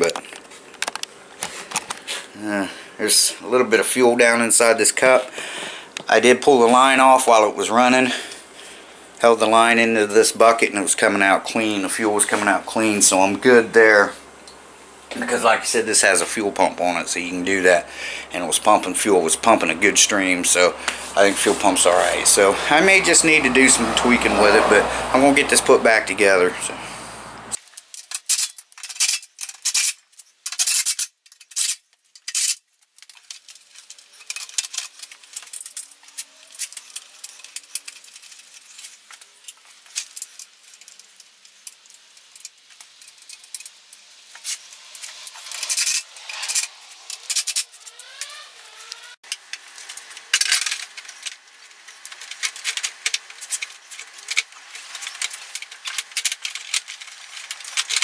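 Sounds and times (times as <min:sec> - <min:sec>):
parts clicking and rattling: 0:27.6 - 0:58.0
short rising squeaks: 0:44.3 - 0:49.2.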